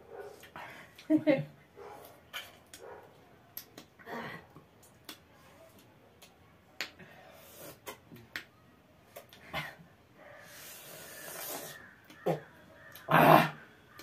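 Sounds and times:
mouth clicks and smacks: 2.0 - 2.9, 3.5 - 9.5, 10.6 - 13.2.

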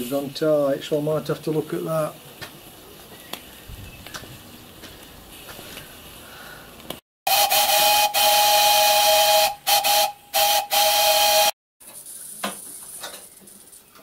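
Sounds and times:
two-note steam whistle: 7.3 - 11.6
steam hissing: 7.3 - 12.5.

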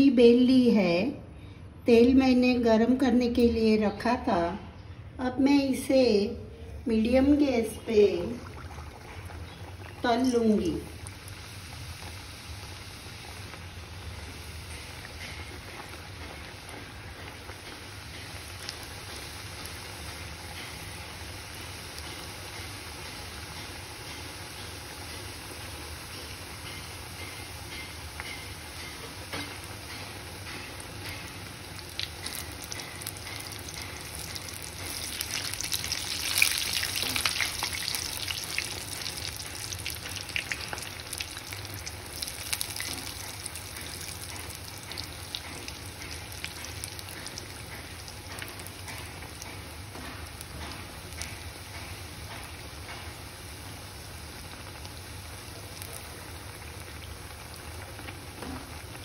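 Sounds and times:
deep-frying sizzle and crackling: 6.9 - 59.0.

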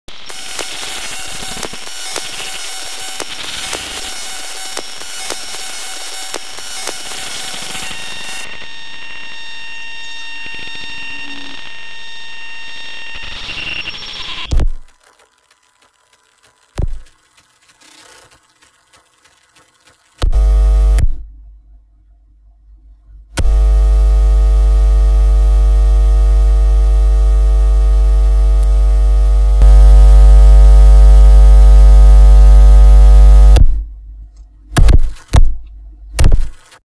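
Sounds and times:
electronic drone of held tones: 0.1 - 14.6, 20.3 - 21.0, 23.4 - 33.6
deep hum: 20.3 - 34.8.

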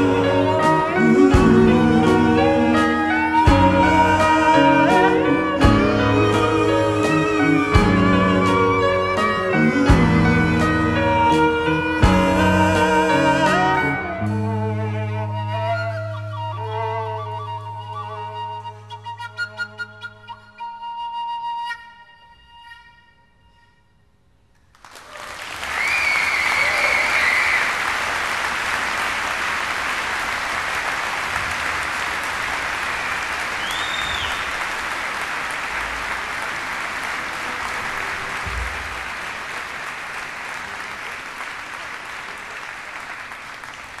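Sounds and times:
audience applauding: 24.7 - 44.0
shrill whistles from crowd: 25.7 - 27.8, 33.5 - 34.6.

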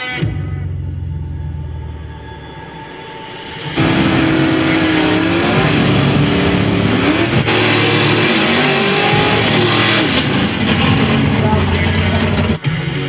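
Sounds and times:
spinning tyres hissing: 3.3 - 12.6
car engines revving hard: 3.8 - 13.0.

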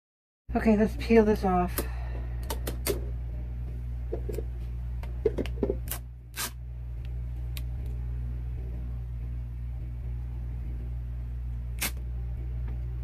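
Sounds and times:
steady low hum: 0.5 - 13.0.

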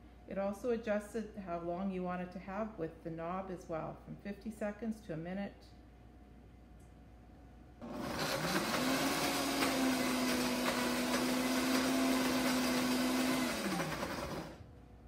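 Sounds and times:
blender motor whirring: 7.8 - 14.6.

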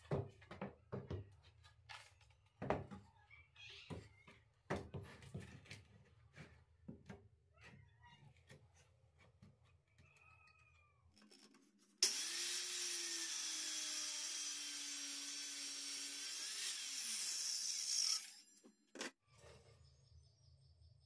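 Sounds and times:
circular saw cutting wood: 12.0 - 18.6.

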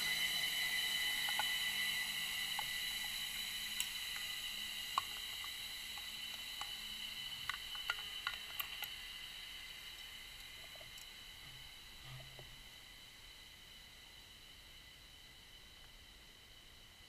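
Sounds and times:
high electronic whine: 0.0 - 8.2
faint clicks and ticks: 0.0 - 12.6.

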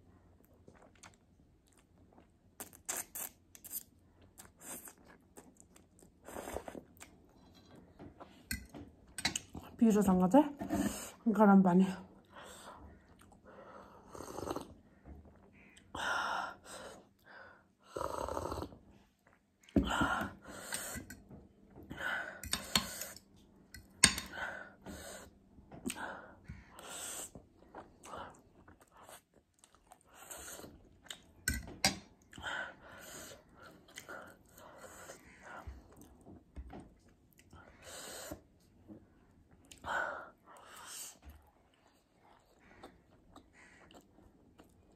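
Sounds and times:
slurping and chewing noodles: 0.4 - 7.3.

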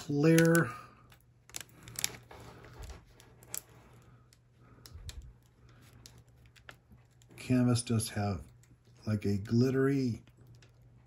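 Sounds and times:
plastic film clicks and crackles: 0.0 - 7.4
faint steady hum: 0.0 - 11.0.

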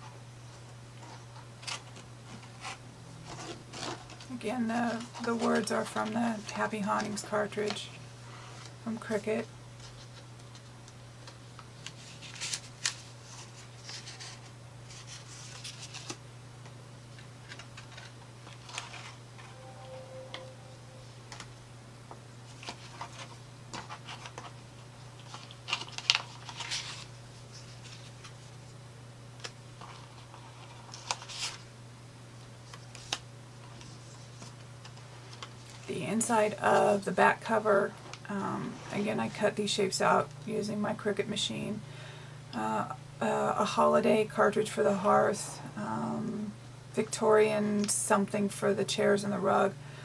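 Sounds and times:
paper pages rustling and clicking: 1.0 - 4.3, 9.8 - 16.2, 17.2 - 19.2, 22.6 - 24.6, 25.2 - 28.4, 29.4 - 31.6, 32.6 - 35.9
low hum: 19.4 - 21.9.

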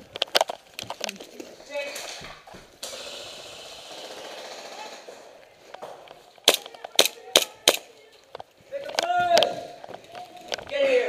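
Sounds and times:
airsoft pistol shots: 6.5 - 7.9.

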